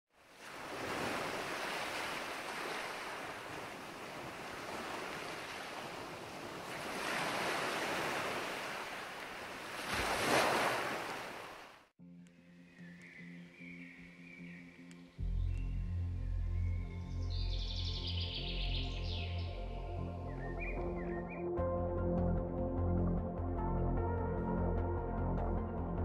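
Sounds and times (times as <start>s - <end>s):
waves breaking on beach: 0.1s - 11.9s.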